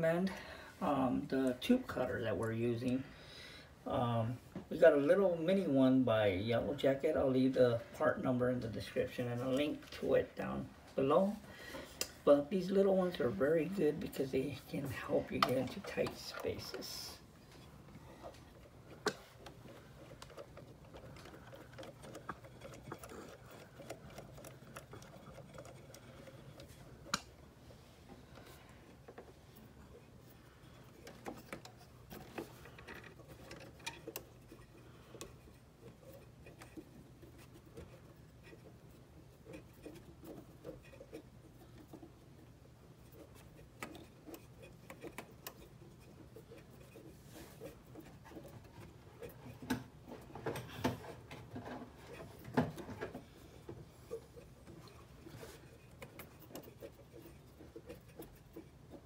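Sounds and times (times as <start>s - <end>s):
tube cutter clicking and scraping: 17.6s - 27.4s, 30.8s - 59.0s.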